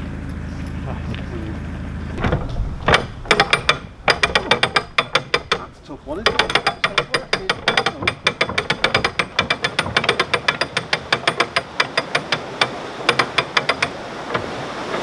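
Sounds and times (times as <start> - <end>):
ratchet pawl clicking: 2.9 - 14.0.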